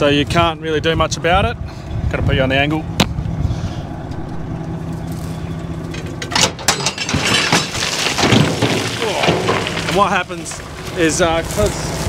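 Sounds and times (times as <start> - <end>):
truck engine running: 3.3 - 7.0
rocks sliding and rattling: 5.1 - 12.0.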